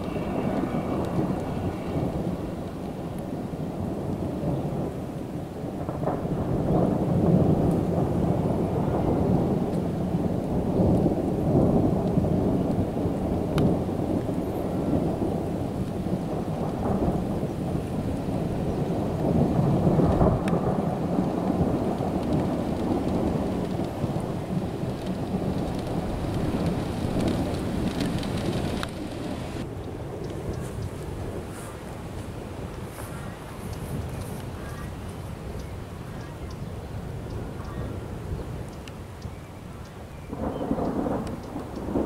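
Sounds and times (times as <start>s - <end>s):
sharp raindrop ticks: 0.0s - 3.3s, 4.0s - 4.3s, 7.2s - 8.0s, 9.6s - 31.0s, 33.6s - 37.8s, 38.6s - 42.0s
thunder rolling: 0.0s - 35.6s, 40.3s - 42.0s
steady rain falling: 0.0s - 42.0s.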